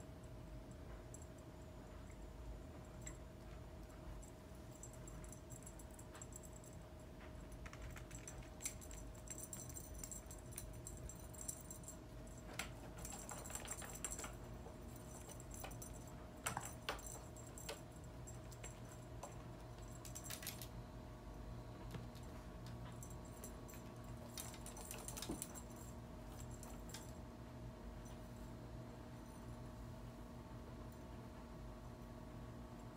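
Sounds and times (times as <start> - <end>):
light jingling: 2.8 - 20.7, 22.2 - 27.2.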